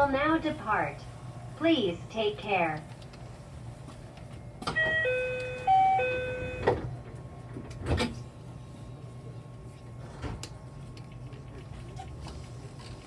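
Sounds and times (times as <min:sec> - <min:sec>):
idling train hum: 0:00.0 - 0:13.0
electronic door chime tune: 0:04.7 - 0:06.8.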